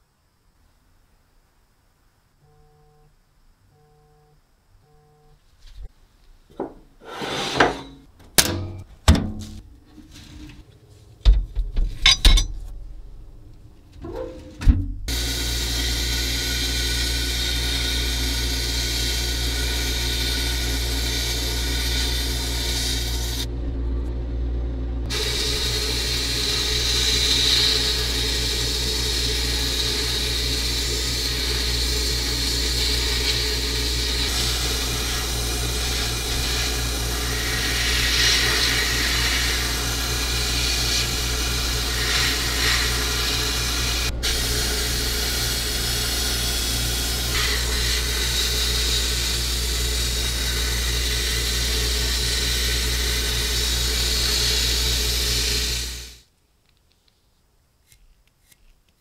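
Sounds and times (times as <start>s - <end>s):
steady low hum: 8.0s - 56.3s
blast gun hissing on steel: 25.1s - 56.2s.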